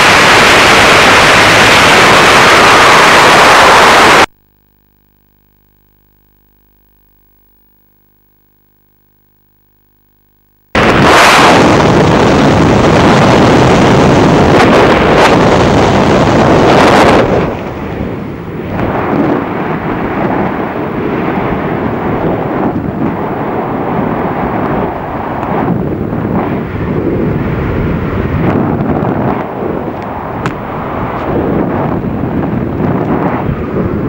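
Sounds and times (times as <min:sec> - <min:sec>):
wind rush on microphone: 0:00.0 - 0:04.3, 0:10.8 - 0:34.0.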